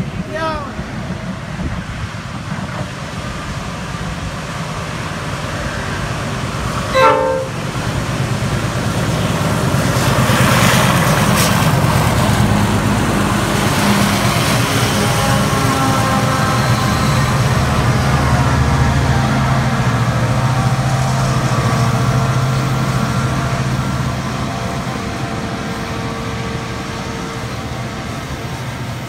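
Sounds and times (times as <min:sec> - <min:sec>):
diesel locomotive rumble: 0:00.0 - 0:29.0
train horn toot: 0:06.9 - 0:07.7, 0:13.8 - 0:19.8.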